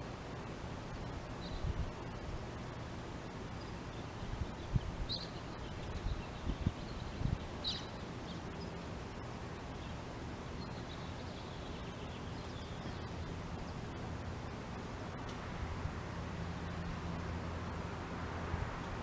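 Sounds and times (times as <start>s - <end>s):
outdoor background noise: 0.0s - 19.0s
faint high twittering: 0.9s - 14.7s
faint bird chirps: 1.0s - 2.2s, 3.6s - 10.0s.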